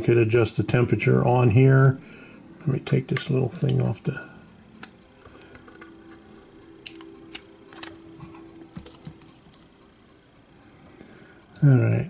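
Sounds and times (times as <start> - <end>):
faint steady hum: 0.0 - 12.0
fingers clicking and tapping metal: 6.8 - 9.8.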